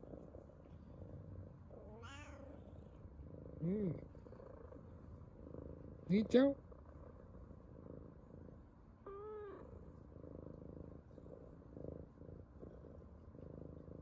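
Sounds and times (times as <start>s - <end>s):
cat purring: 0.0s - 14.0s
cat meowing: 1.9s - 2.6s.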